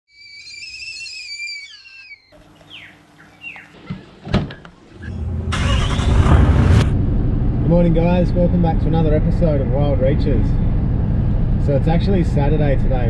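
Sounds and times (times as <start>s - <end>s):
wavering whistle-like call: 0.1s - 3.7s
short bird chirps: 0.1s - 3.8s
rush of noise: 5.0s - 13.0s.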